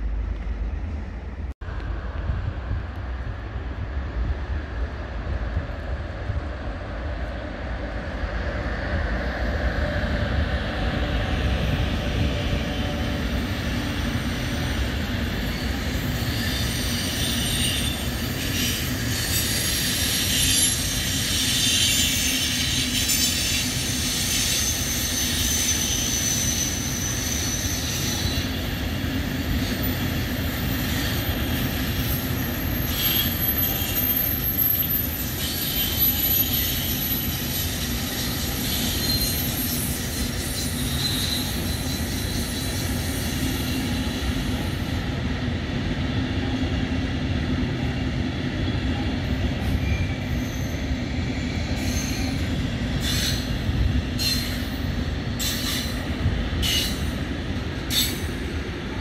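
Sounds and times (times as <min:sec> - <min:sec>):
freight train rumbling past: 0:00.0 - 0:59.0
high-pitched wheel squeals: 0:14.1 - 0:28.9, 0:29.5 - 0:44.7, 0:49.7 - 0:51.0, 0:51.6 - 0:56.0.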